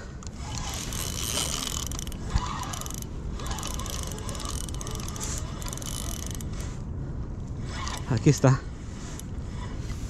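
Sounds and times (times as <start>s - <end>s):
fishing reel clicking: 0.4s - 6.5s.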